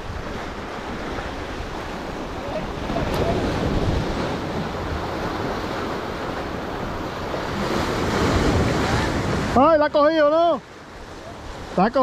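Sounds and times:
wind buffeting microphone: 0.0s - 9.6s
waves washing against rocks: 0.0s - 12.0s.

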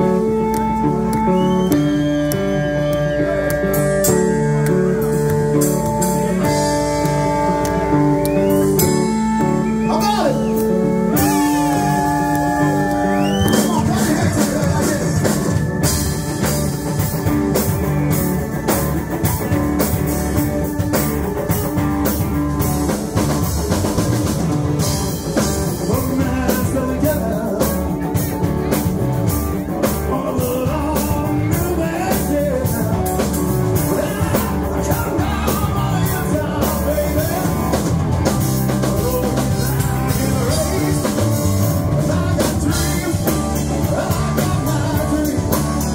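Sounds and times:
live rock band playing: 0.0s - 45.9s
man singing: 11.1s - 15.9s, 25.6s - 45.9s.

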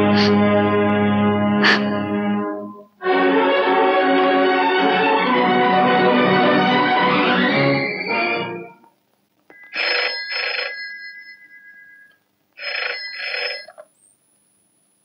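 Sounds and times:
telephone bell ringing: 9.5s - 13.8s.

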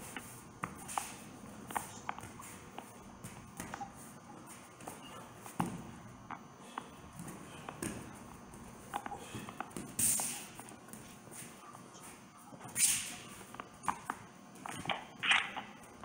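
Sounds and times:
bare feet tapping on foam mat: 0.6s - 6.4s.

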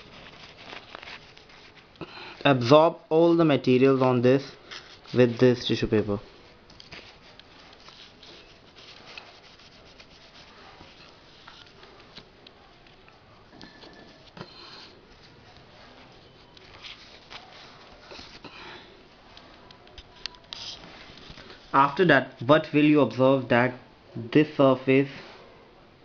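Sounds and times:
tissue paper rustling: 0.0s - 2.4s, 4.0s - 12.9s, 13.9s - 21.8s.

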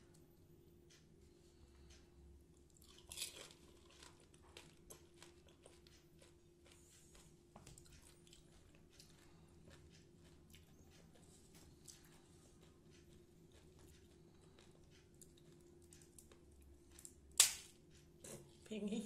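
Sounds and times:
fried shell crunching: 2.8s - 6.8s, 11.5s - 17.8s.

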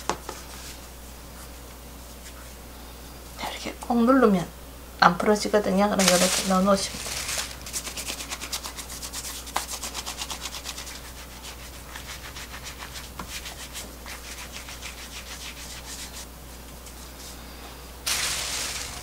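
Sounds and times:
hands rubbing dough: 6.0s - 17.4s.

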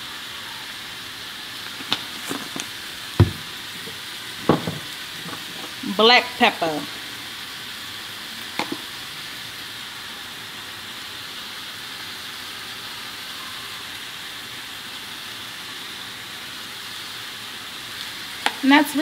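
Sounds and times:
food sizzling in a frying pan: 0.0s - 19.0s.

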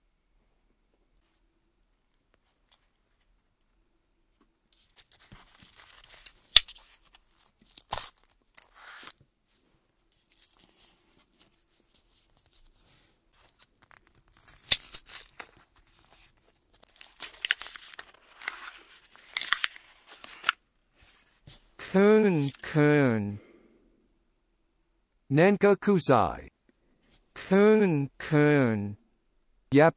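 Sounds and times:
paper wrapper tearing and crinkling: 4.8s - 9.2s, 10.2s - 11.5s, 13.4s - 20.6s, 22.4s - 22.6s.

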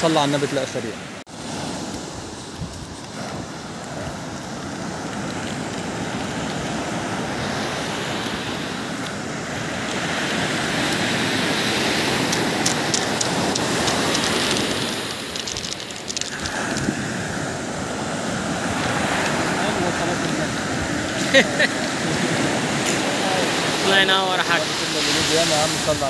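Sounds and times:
sea surf breaking on beach: 0.0s - 26.0s.

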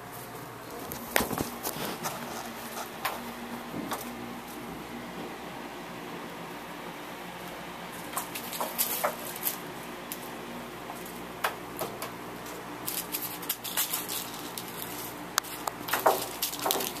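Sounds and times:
toy mice batted on floor: 12.8s - 17.0s.

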